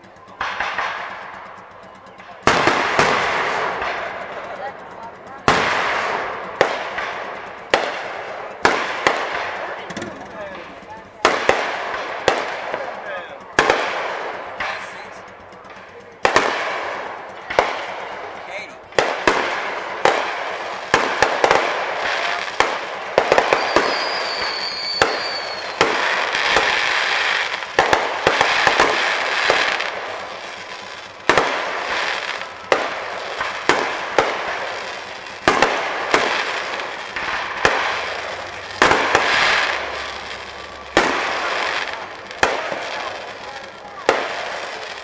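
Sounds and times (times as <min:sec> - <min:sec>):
fireworks bangs: 0:00.0 - 0:45.0
fireworks crackling: 0:00.0 - 0:45.0
high whistle: 0:23.4 - 0:26.0.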